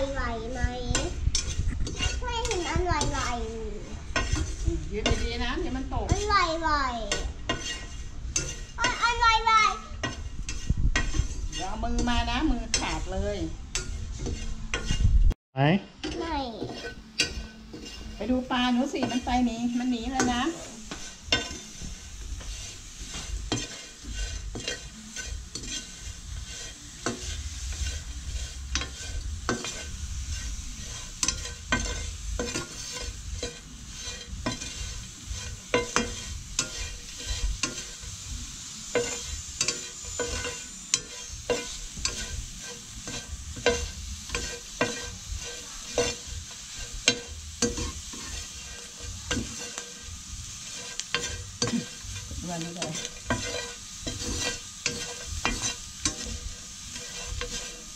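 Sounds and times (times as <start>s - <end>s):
metal spatula scraping pan: 0.0s - 15.2s, 16.0s - 57.9s
light sizzle: 0.0s - 57.9s.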